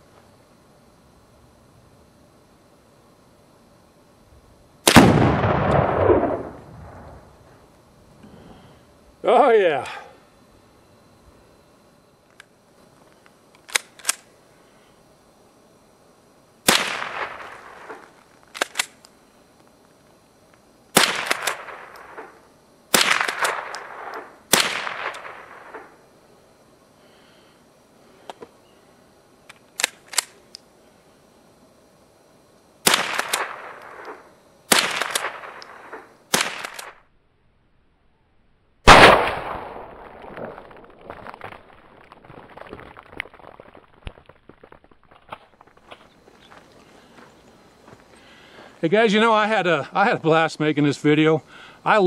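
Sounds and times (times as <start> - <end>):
rifle shots cracking: 4.8 - 7.3, 16.7 - 19.0, 21.0 - 26.0, 32.8 - 37.0, 38.9 - 40.9
rifle slide clacking: 13.6 - 14.2.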